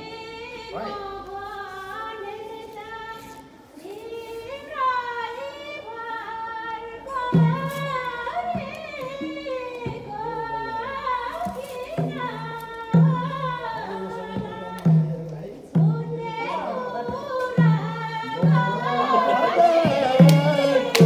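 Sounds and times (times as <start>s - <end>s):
person singing: 11.4s - 21.0s.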